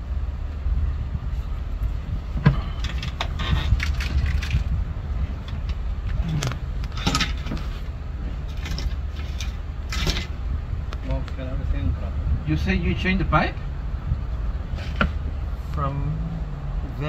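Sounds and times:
engine running with low rumble: 0.0 - 17.0
metallic clinks and rattles: 5.4 - 7.7, 8.5 - 10.3.

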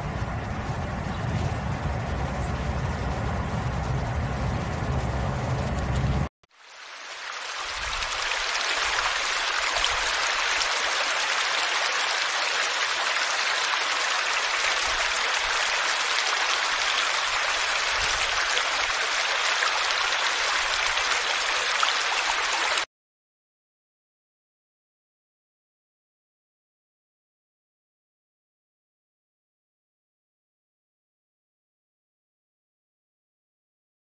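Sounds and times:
stream rushing over rocks: 6.6 - 22.9.

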